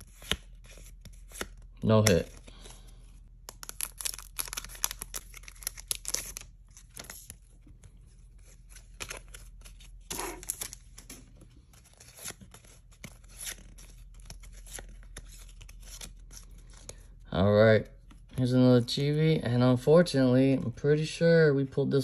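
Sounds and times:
cards rustling and clicking: 0.0s - 17.2s, 17.9s - 19.1s
plastic wrapper crackling: 3.5s - 7.2s.

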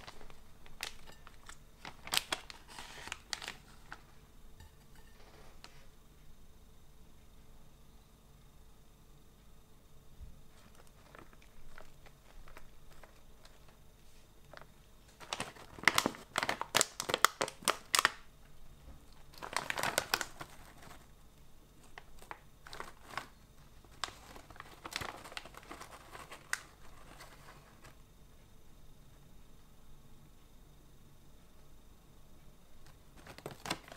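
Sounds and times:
plastic snack bag crinkling: 0.0s - 4.2s, 10.5s - 18.3s, 19.1s - 21.1s, 21.8s - 28.0s, 32.8s - 33.9s
soft bag rustling: 10.4s - 16.6s, 21.8s - 28.0s.

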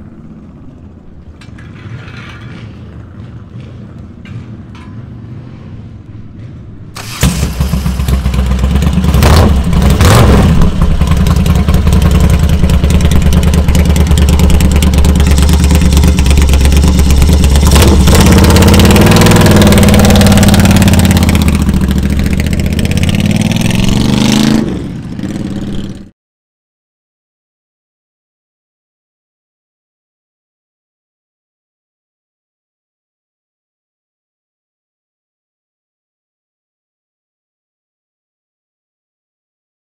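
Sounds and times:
motorcycle engine revving: 7.0s - 26.1s.

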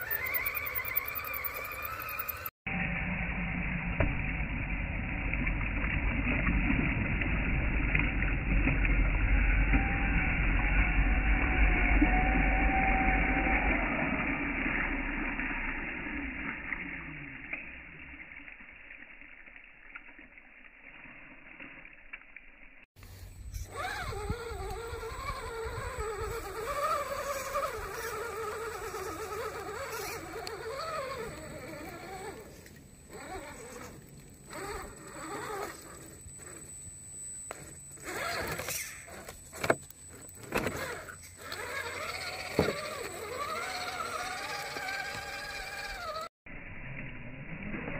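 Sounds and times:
small electric motor whining: 0.0s - 2.5s, 9.2s - 18.3s, 23.0s - 46.3s.

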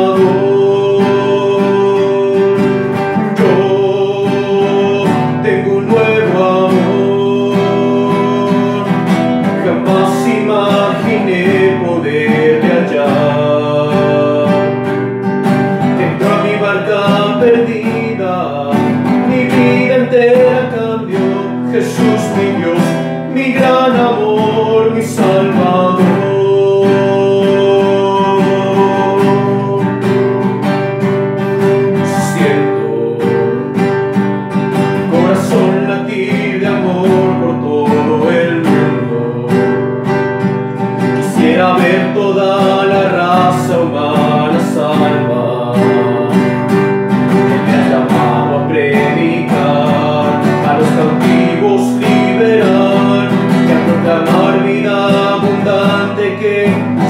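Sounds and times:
acoustic guitar strumming: 0.0s - 57.0s
person singing: 0.0s - 57.0s.

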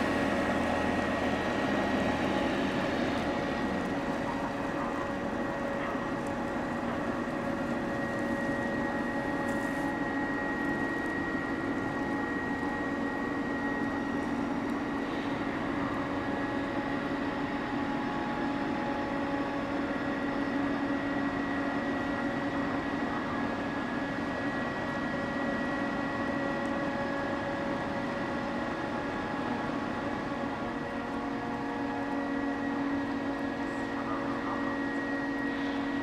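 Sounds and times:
ship machinery drone: 0.0s - 36.0s.

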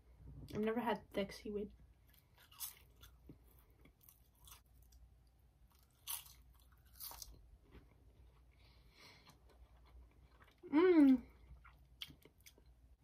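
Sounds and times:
chewing crispy snack: 2.1s - 5.1s, 5.7s - 12.7s.

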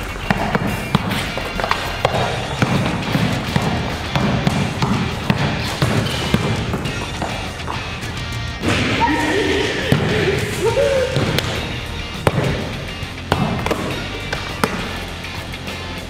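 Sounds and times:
basketball bouncing on tiled floor: 0.0s - 9.0s, 9.8s - 10.5s, 11.1s - 15.0s
background music: 0.0s - 16.0s.

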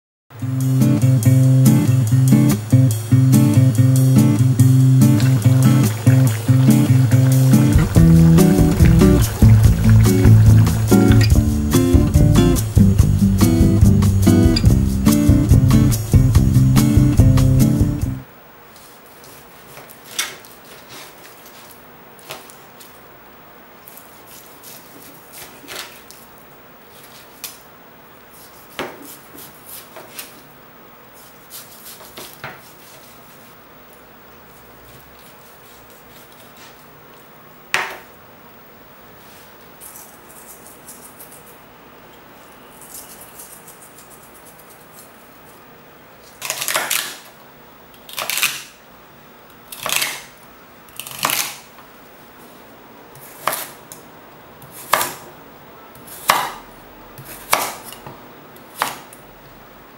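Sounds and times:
knife chopping carrot: 53.2s - 53.8s, 54.6s - 55.3s, 56.0s - 56.6s, 57.2s - 58.1s, 58.7s - 59.2s.

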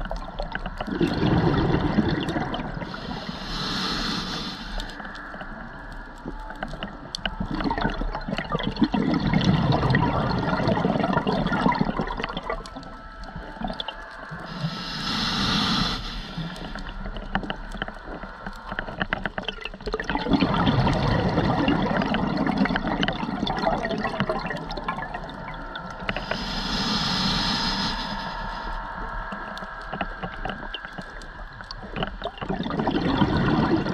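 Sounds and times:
exhaled bubbles rushing: 0.0s - 3.2s, 6.2s - 14.6s, 19.4s - 26.5s, 29.0s - 33.9s
regulator inhale hiss: 2.8s - 5.6s, 14.4s - 17.0s, 26.1s - 30.2s.

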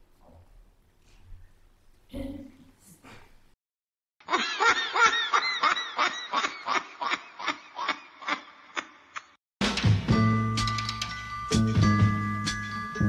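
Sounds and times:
person laughing: 4.3s - 9.4s.

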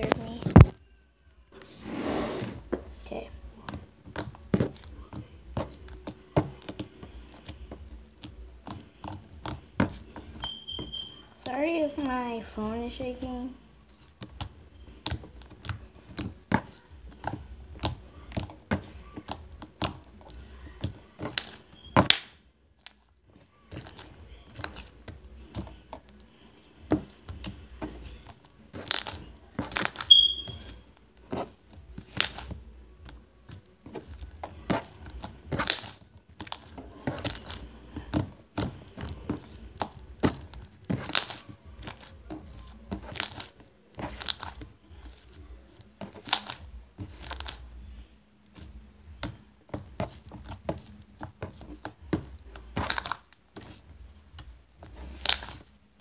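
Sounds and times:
slime squished by hand: 28.7s - 32.6s.

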